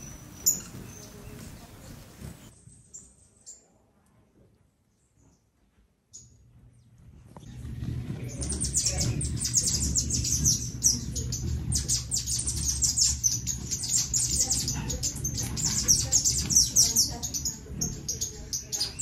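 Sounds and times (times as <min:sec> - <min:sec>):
dense chorus of birds chirping: 0:00.0 - 0:04.0, 0:06.1 - 0:19.0
steady low rumble: 0:06.5 - 0:18.4.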